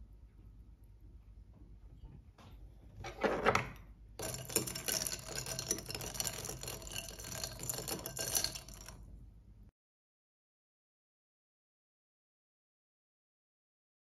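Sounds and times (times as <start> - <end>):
spoon clinking against glass: 4.2 - 9.0.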